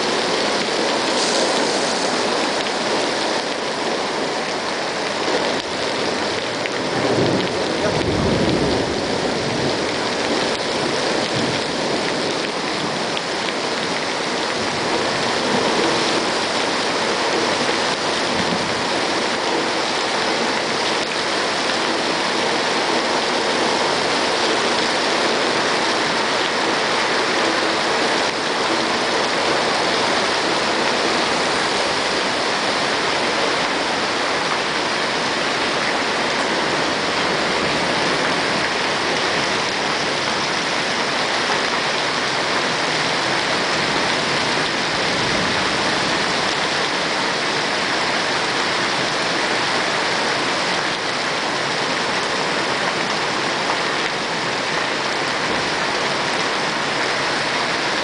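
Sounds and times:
heavy rain on road and cars: 0.0 - 58.0
water pouring off spouts: 0.1 - 23.1
thunder rumble: 5.8 - 12.9.

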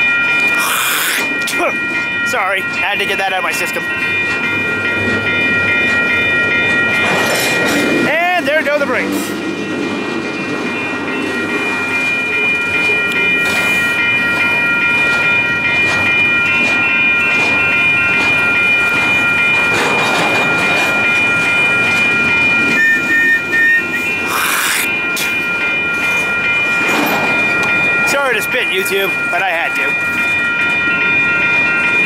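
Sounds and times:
train wheels rumbling: 0.0 - 32.0
train brakes squealing: 22.8 - 25.4.

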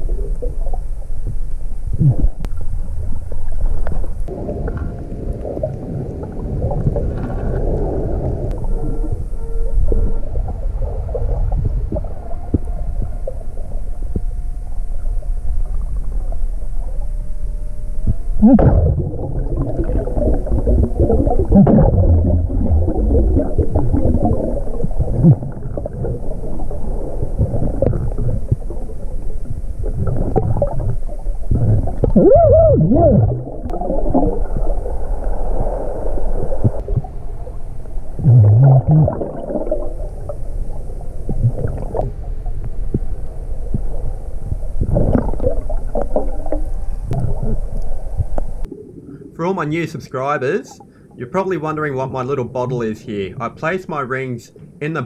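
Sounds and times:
water gurgling: 0.0 - 17.1, 18.0 - 50.6
air bubbles: 18.4 - 37.2, 38.2 - 42.2, 44.6 - 47.6.

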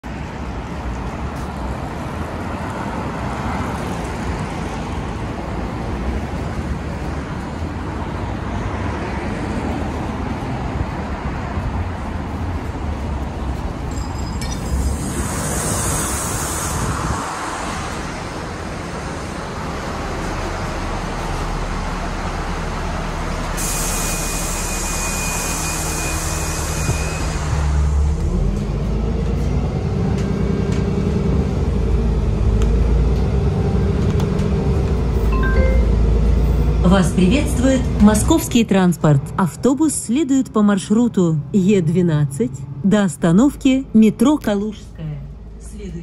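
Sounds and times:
road traffic passing: 0.0 - 46.0
bus air brake hiss: 14.8 - 17.3, 23.6 - 27.9
brief high tone: 35.3 - 36.4.

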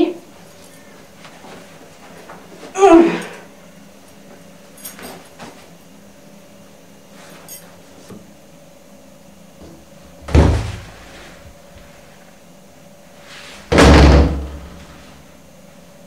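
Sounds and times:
heavy thump: 10.2 - 11.1, 13.7 - 14.8.

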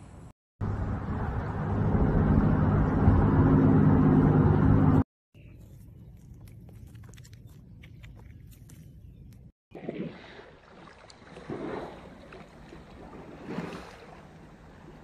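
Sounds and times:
water sloshing and splashing: 9.7 - 15.0.

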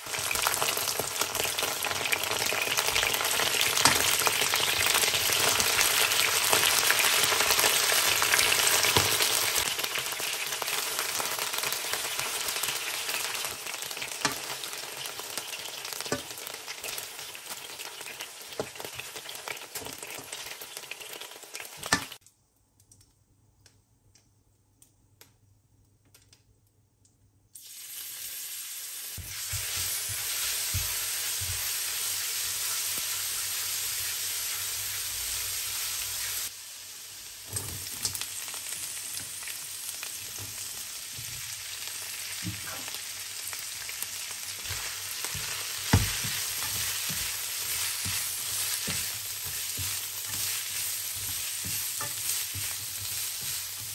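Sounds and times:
oil sizzling in a wok: 0.0 - 22.2, 27.5 - 53.9
vegetables sizzling in stir-fry: 0.0 - 22.2, 27.6 - 53.9
spatula scraping pan: 44.6 - 53.9.

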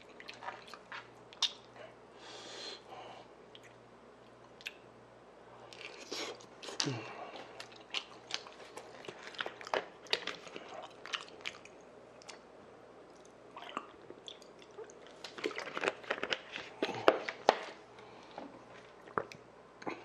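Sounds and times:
chewing and swallowing: 0.0 - 1.7, 5.7 - 12.5, 13.1 - 17.1
plastic water bottle crinkling: 15.1 - 17.8.

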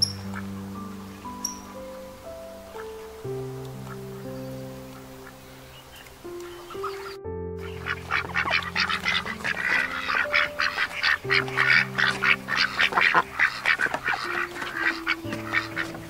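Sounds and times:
ducks quacking: 0.0 - 16.0
slow background music: 0.0 - 16.0.

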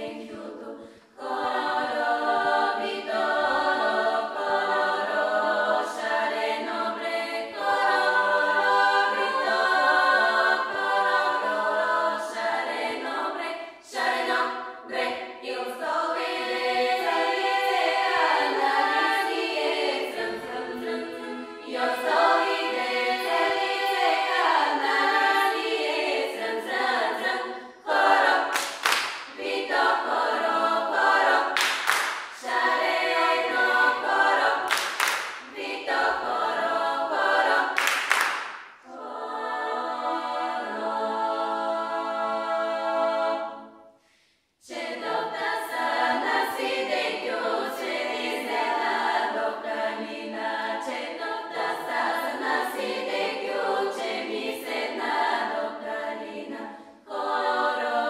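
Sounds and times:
women's choir singing a cappella: 0.0 - 58.0
hands clapping: 28.5 - 29.4, 31.6 - 32.5, 34.7 - 35.6, 37.8 - 38.8.

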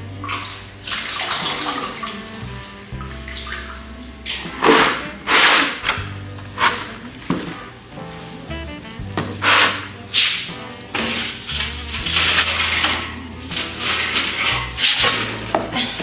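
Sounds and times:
background music with bass line: 0.0 - 16.0.

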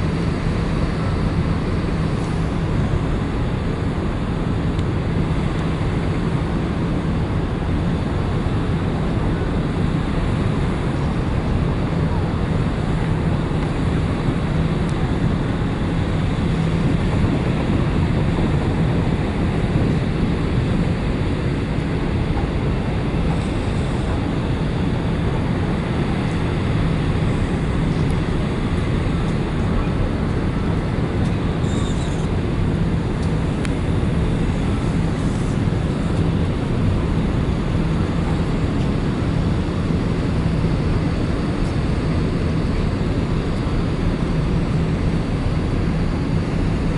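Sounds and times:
ferry engine hum: 0.0 - 46.9
rush of wind and water: 0.0 - 46.9.

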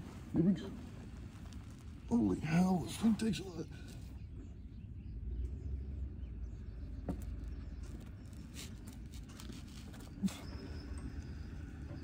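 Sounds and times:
clothing rumbling against microphone: 0.0 - 4.8.

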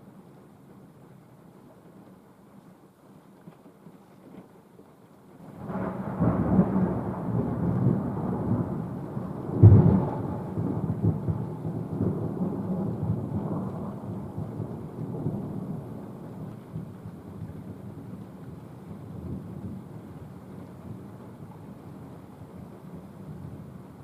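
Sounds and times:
thunder rumbling and clapping: 5.5 - 24.0.

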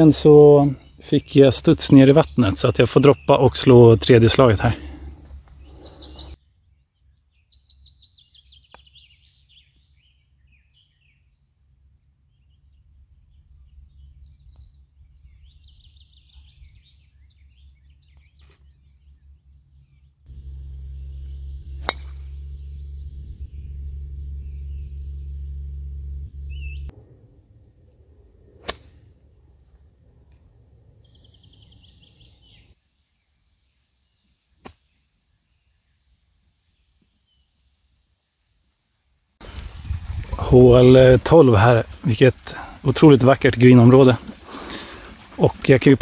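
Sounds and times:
birds singing: 0.0 - 26.9, 30.4 - 37.6, 39.4 - 46.0
steady low rumble: 18.9 - 30.8
golf driver striking ball: 20.3 - 26.0, 28.6 - 29.0.

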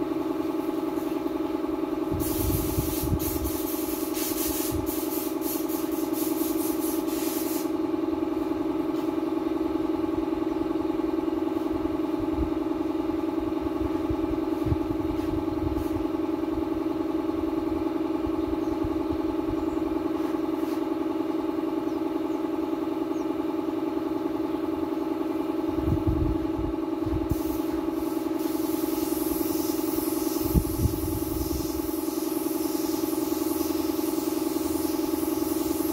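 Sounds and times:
spray paint can hissing: 2.2 - 7.8, 27.3 - 35.9.

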